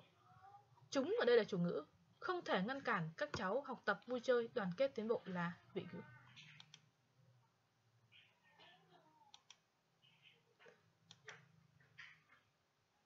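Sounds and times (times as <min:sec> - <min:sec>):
computer mouse clicks: 0:06.4 - 0:06.9, 0:09.3 - 0:09.7, 0:11.0 - 0:11.5.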